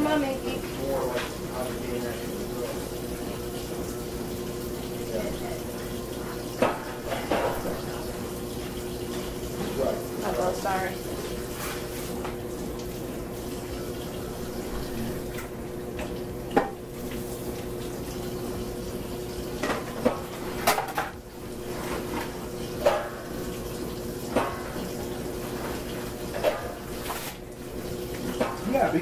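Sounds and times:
faucet running into a sink: 0:00.0 - 0:29.0
dishes clinking in a sink: 0:06.5 - 0:08.2, 0:14.6 - 0:16.9, 0:19.6 - 0:23.6, 0:24.3 - 0:27.4, 0:28.2 - 0:29.0.

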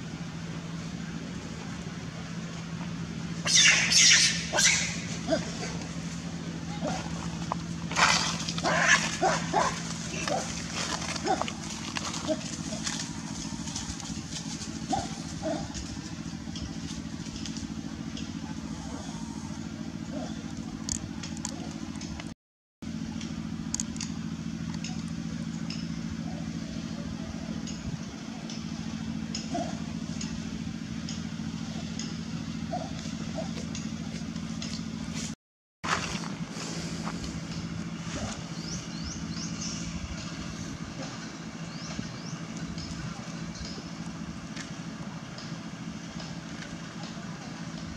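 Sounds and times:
engine idling: 0:00.0 - 0:47.9
brief high calls: 0:03.4 - 0:05.1.

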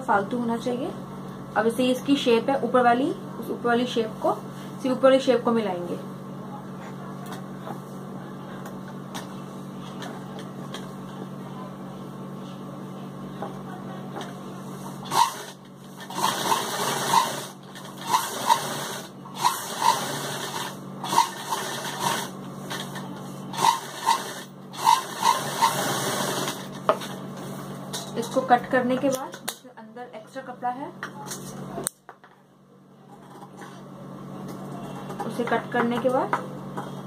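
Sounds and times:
sewing machine stitching: 0:15.0 - 0:26.8.

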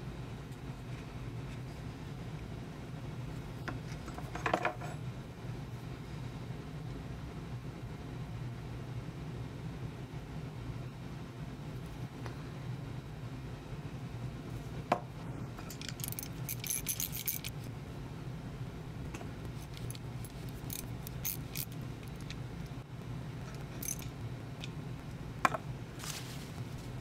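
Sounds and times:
steady low hum: 0:00.0 - 0:27.0
metal parts and tools clicking: 0:15.7 - 0:17.7, 0:19.5 - 0:22.8, 0:23.4 - 0:24.8.

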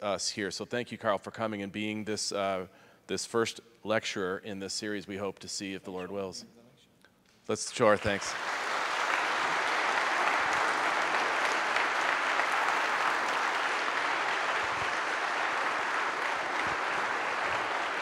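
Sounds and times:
audience applauding: 0:07.7 - 0:18.0.

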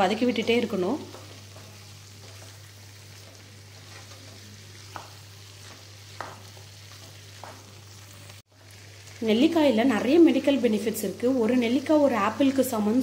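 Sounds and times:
low sizzle: 0:00.0 - 0:13.0
spatula stirring in frying pan: 0:00.3 - 0:09.2.

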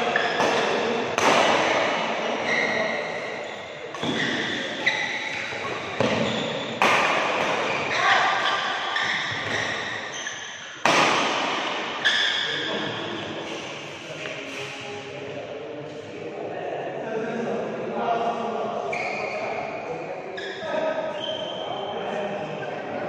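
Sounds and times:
court shoes squeaking: 0:00.0 - 0:01.7, 0:02.4 - 0:14.7, 0:18.9 - 0:19.6, 0:20.3 - 0:22.0
rackets striking shuttlecock: 0:00.0 - 0:02.0, 0:03.9 - 0:12.1.

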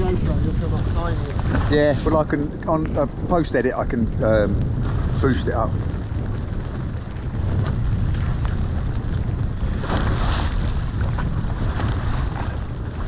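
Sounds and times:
water slapping against hull: 0:00.0 - 0:13.0
wind buffeting microphone: 0:00.0 - 0:13.0.

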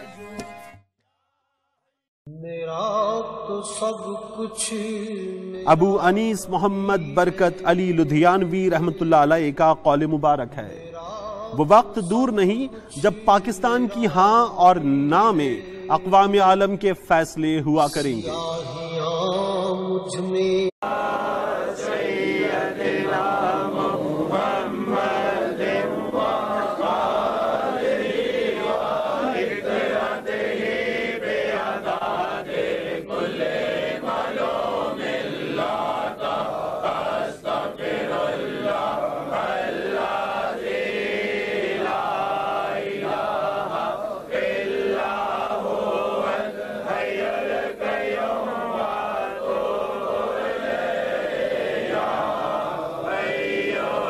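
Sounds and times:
men chanting in unison: 0:20.8 - 0:54.0.

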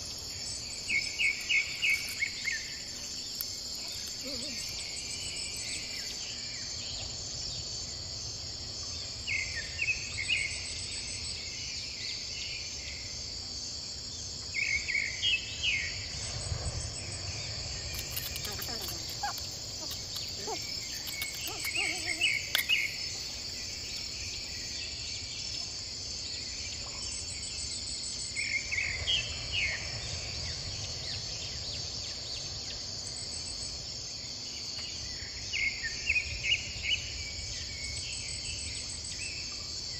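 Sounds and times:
crickets and insects chirping: 0:00.0 - 0:39.9
bird chirping: 0:17.5 - 0:25.7.

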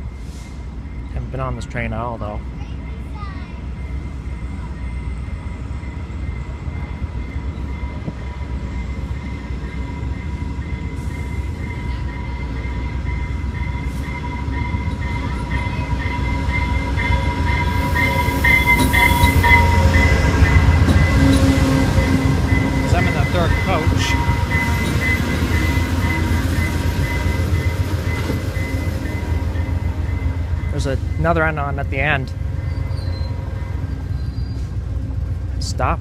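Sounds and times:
train rumble: 0:00.0 - 0:36.0
high-pitched squeal: 0:13.1 - 0:34.8.

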